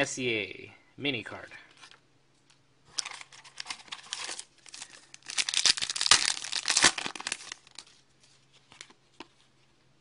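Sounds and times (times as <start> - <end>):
wrapper tearing and crinkling: 2.9 - 8.0.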